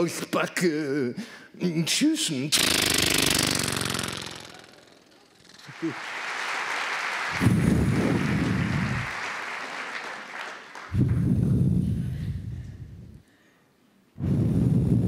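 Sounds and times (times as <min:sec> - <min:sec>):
audience applauding: 0:05.5 - 0:11.4
loud low rumbles: 0:07.4 - 0:09.0.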